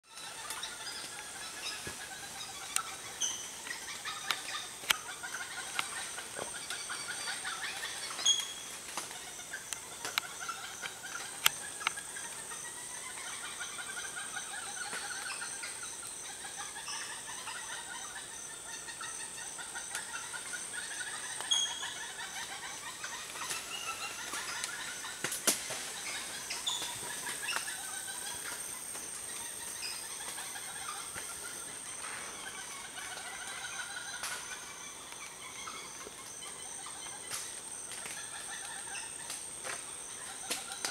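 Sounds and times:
monkeys calling: 0:00.0 - 0:40.9.

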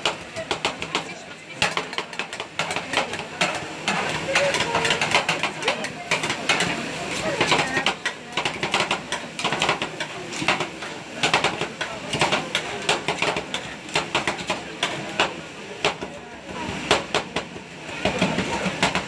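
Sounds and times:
metal spatulas tapping on steel plate: 0:00.0 - 0:06.8.

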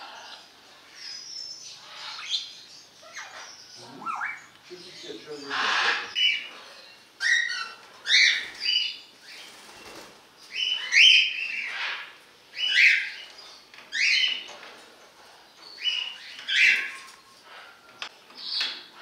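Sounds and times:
parrots squawking: 0:01.8 - 0:09.0, 0:10.5 - 0:13.2, 0:15.8 - 0:17.8.

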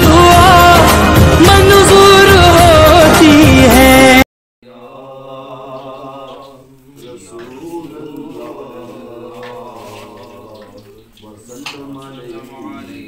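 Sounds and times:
devotional song with vocal: 0:00.0 - 0:13.0
man chanting prayer: 0:04.7 - 0:13.0.

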